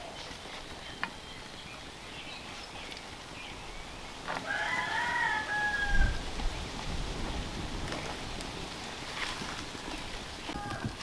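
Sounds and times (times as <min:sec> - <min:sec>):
rooster crowing: 0:04.4 - 0:06.3.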